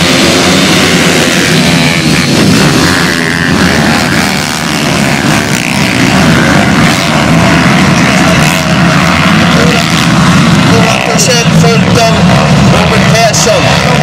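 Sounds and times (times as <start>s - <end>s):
small motorcycle engines buzzing: 0.0s - 14.0s.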